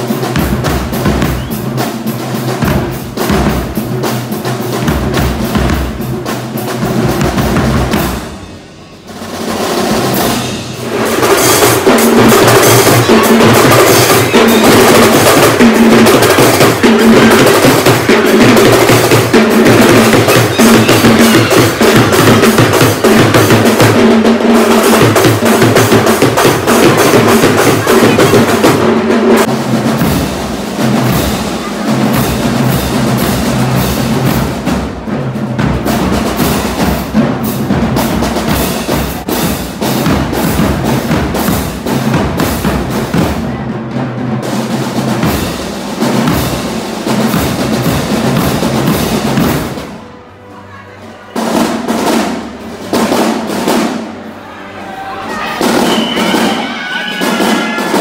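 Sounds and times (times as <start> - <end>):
bass drums: 0.0 - 8.5, 9.2 - 43.6
snare drum rolls: 0.0 - 50.0, 51.4 - 54.3, 55.4 - 58.0.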